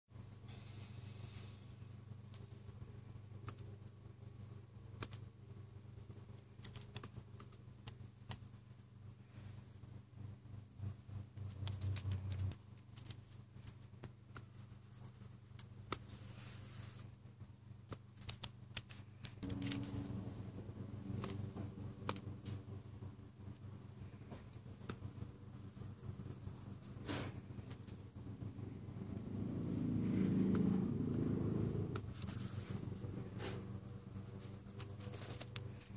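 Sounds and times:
low steady hum: 0.1s - 35.9s
pen scratching on screen: 31.9s - 35.6s.

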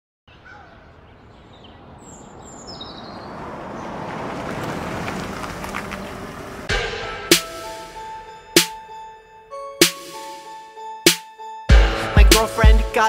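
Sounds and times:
bird chirps: 0.3s - 3.9s.

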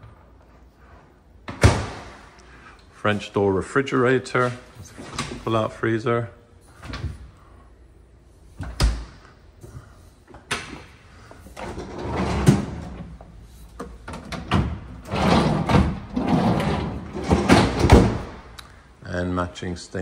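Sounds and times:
drawer and plastic bins rattling: 11.4s - 13.2s, 13.8s - 18.4s
freezer drawer sliding open: 11.6s - 13.1s, 14.3s - 18.3s.

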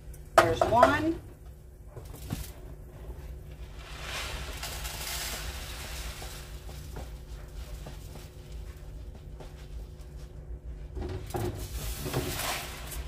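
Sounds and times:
pot of water boiling: 0.0s - 13.0s
rice pouring into a cup: 3.5s - 8.6s.

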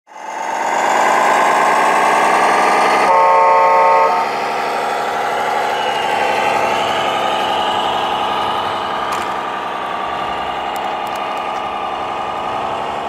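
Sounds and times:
toy truck engine running: 0.1s - 13.0s
horn blast: 3.1s - 4.4s.

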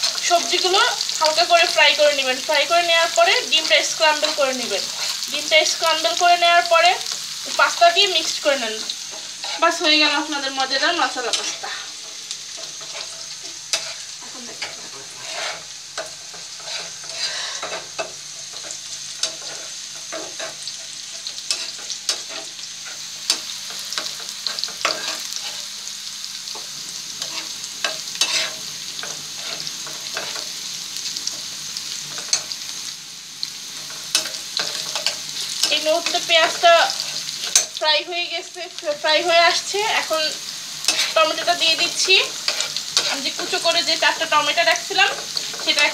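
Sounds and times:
onions sizzling in oil: 0.0s - 45.9s
metal spatula scraping pan: 8.8s - 9.9s, 11.1s - 25.7s, 26.6s - 30.5s, 33.8s - 37.8s, 40.8s - 43.8s.

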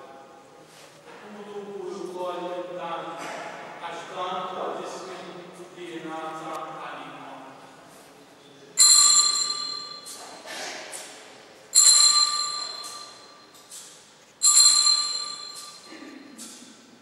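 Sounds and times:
altar bells ringing: 8.8s - 10.2s, 11.7s - 13.7s, 14.4s - 16.1s.

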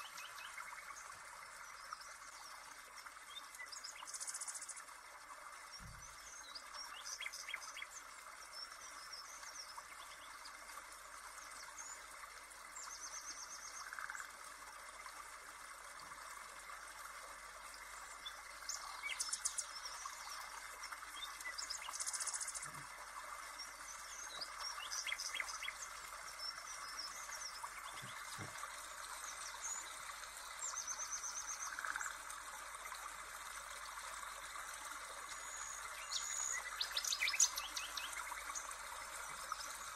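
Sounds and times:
faint steady hiss: 0.0s - 39.9s.

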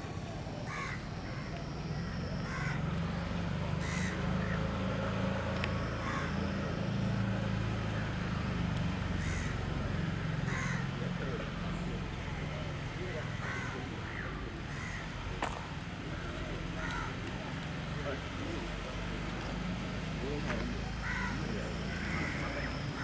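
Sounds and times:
crows cawing: 0.6s - 2.9s, 3.8s - 4.8s, 5.7s - 6.9s, 9.1s - 11.2s, 13.3s - 15.1s, 16.1s - 17.2s, 21.0s - 23.0s.

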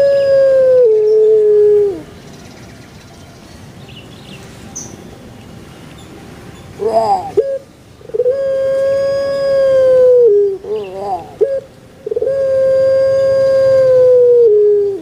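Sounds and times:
dove cooing: 0.0s - 2.1s, 6.8s - 15.0s.

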